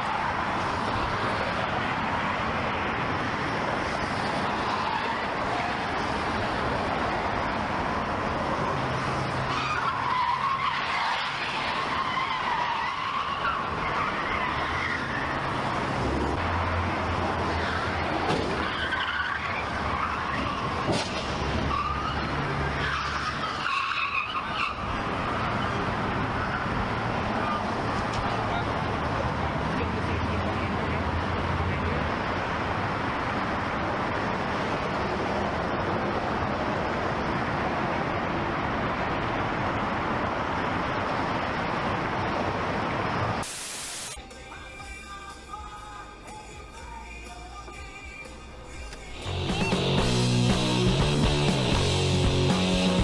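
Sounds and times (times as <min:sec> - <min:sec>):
car tyres skidding and squealing: 0:00.0 - 0:29.6
vehicle and road noise: 0:00.0 - 0:53.0.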